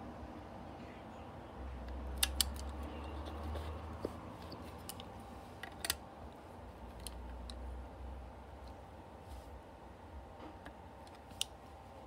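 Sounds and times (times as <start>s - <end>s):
sharp metallic clicks: 1.9s - 2.9s.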